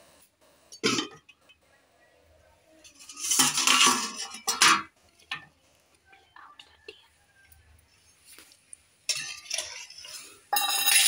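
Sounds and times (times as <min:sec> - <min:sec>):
metal bowls clinking: 0:02.9 - 0:05.4, 0:09.1 - 0:11.0.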